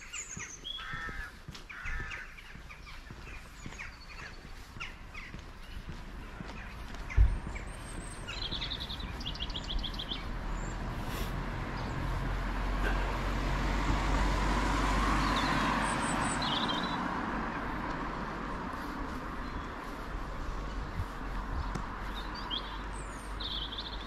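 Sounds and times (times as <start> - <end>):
small birds chirping: 0.0 - 12.6, 15.1 - 24.0
vehicle passing: 5.9 - 24.0.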